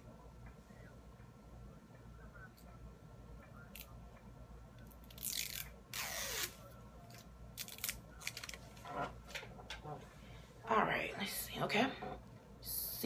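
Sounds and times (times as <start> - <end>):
wrapper tearing and crinkling: 5.1 - 6.5, 7.6 - 8.8.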